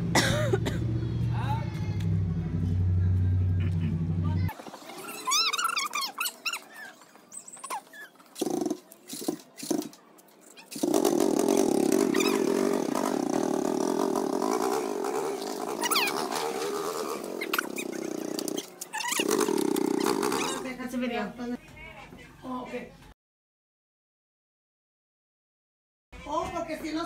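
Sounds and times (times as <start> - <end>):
short high squeaks: 5.0 - 9.9, 14.4 - 20.6
quad bike engine running: 10.8 - 20.7.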